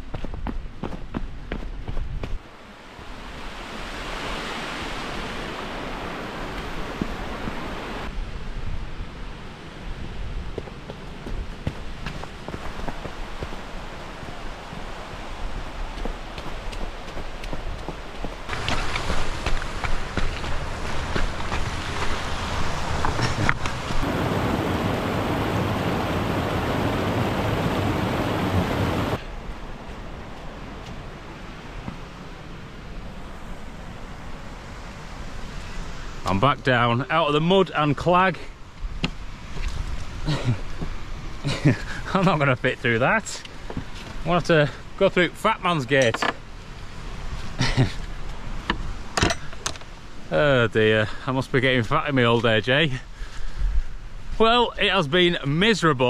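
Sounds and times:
stream rushing over rocks: 2.6s - 8.1s, 12.5s - 35.0s
loud rushing noise: 24.0s - 29.2s.

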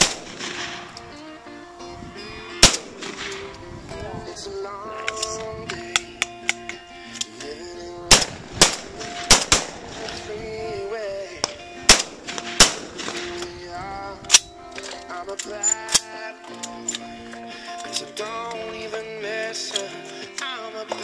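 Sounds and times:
shotgun shots: 0.0s - 1.0s, 2.6s - 3.5s, 8.1s - 10.4s, 11.4s - 13.6s
background music: 0.0s - 21.0s.

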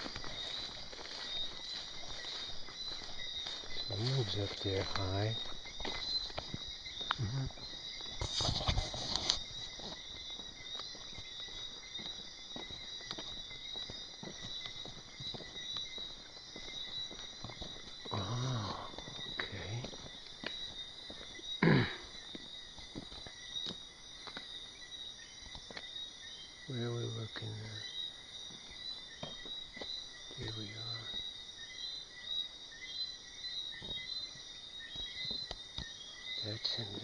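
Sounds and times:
crickets trilling: 0.0s - 37.0s.

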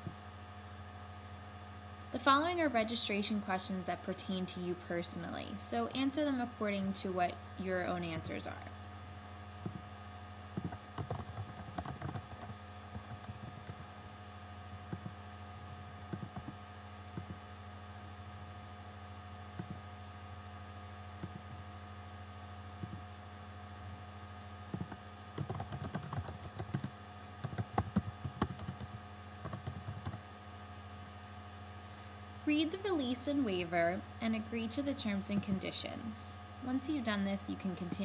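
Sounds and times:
low electrical hum: 0.0s - 38.0s
computer keyboard typing: 9.6s - 9.8s, 10.6s - 14.0s, 14.8s - 15.2s, 16.1s - 16.6s, 17.2s - 17.4s, 19.6s - 19.8s, 21.2s - 21.6s, 22.8s - 23.0s, 24.8s - 30.2s.

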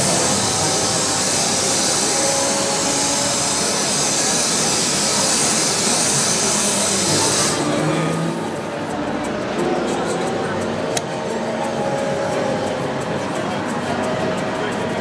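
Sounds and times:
handheld vacuum cleaner running: 0.0s - 9.8s.

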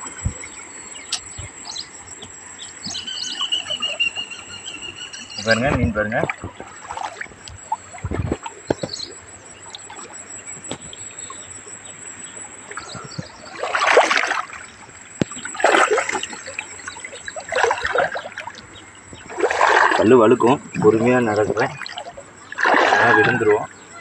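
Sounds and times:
water splashing and dripping off net: 13.5s - 20.1s, 21.6s - 23.4s.

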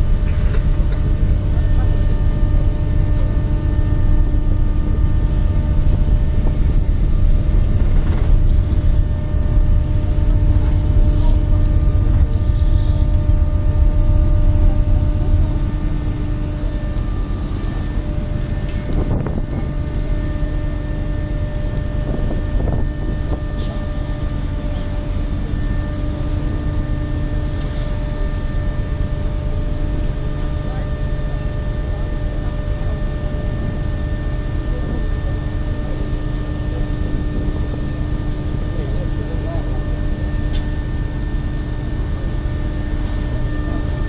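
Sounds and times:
ferry engines humming: 0.0s - 44.0s
wind rumble on microphone: 0.0s - 44.0s.

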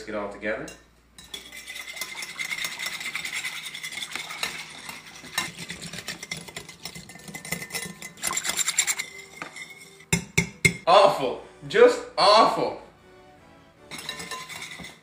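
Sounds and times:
whisk scraping a bowl: 1.2s - 10.2s, 13.9s - 15.0s.

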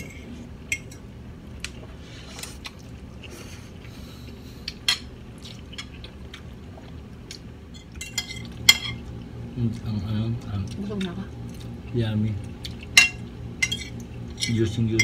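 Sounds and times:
forks clinking on plates: 12.9s - 15.0s.

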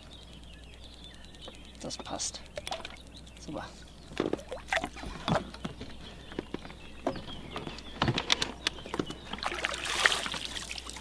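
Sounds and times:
fish splashing in water: 9.3s - 11.0s.

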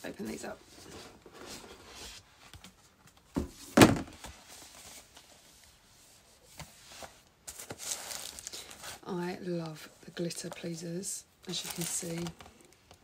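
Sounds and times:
cardboard box thumps: 3.3s - 4.2s.

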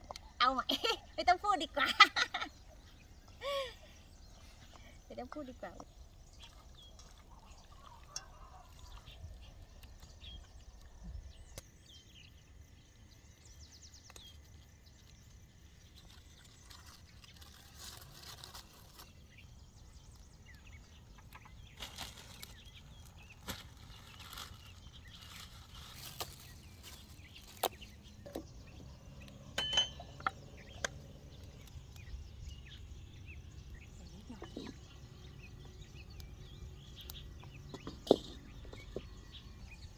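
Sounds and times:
low outdoor rumble: 16.2s - 39.9s
knocks and clinks of handling a stove: 29.6s - 30.4s.

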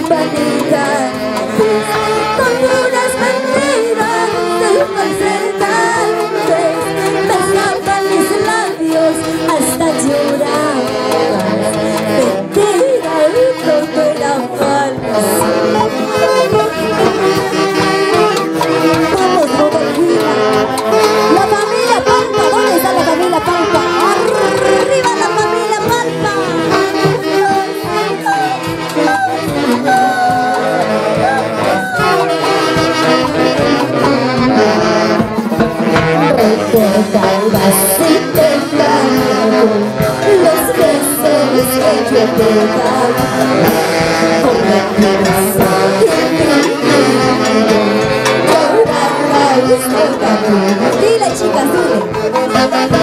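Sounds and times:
woman singing into a microphone: 0.0s - 35.2s, 36.0s - 53.0s
saxophone band playing: 0.0s - 53.0s
drum: 22.2s - 49.1s.

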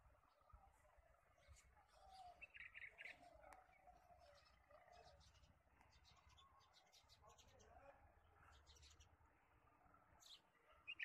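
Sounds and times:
bird chirping: 1.4s - 7.1s, 10.2s - 11.0s.

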